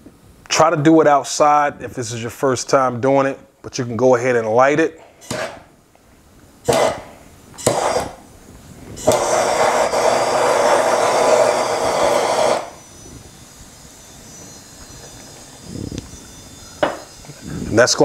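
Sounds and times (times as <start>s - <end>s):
rushing hiss of flame: 7.6s - 12.8s.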